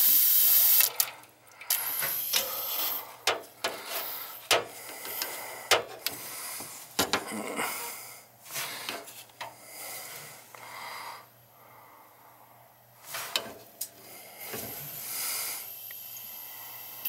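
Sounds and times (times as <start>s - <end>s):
air hissing from radiator valve: 0.0s - 6.9s, 13.0s - 17.0s.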